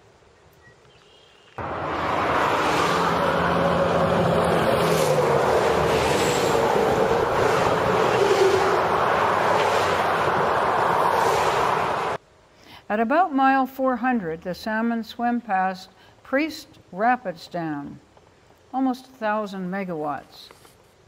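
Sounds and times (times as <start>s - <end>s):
highway road noise: 1.5s - 12.2s
wind rushing: 1.6s - 12.2s.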